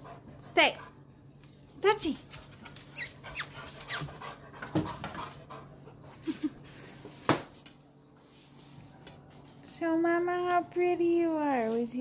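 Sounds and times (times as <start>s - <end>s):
dog panting: 0.0s - 1.2s, 2.2s - 7.0s.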